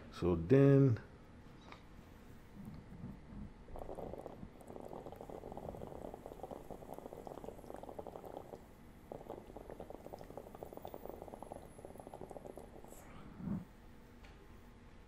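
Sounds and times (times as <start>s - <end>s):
water bubbling in a vaporizer: 2.7s - 13.6s.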